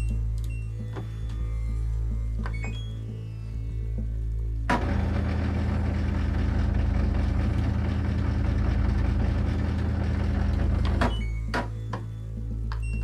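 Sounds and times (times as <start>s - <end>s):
washing machine growling hum: 0.0s - 13.0s.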